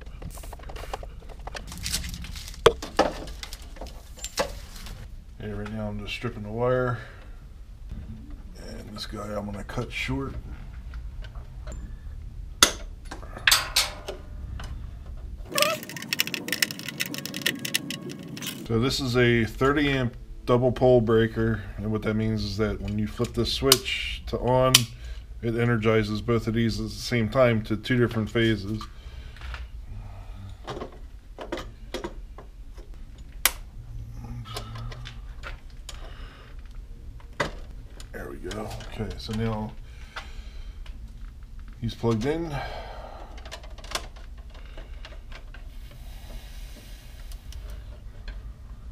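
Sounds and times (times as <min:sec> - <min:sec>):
low steady hum: 0:00.0 - 0:48.9.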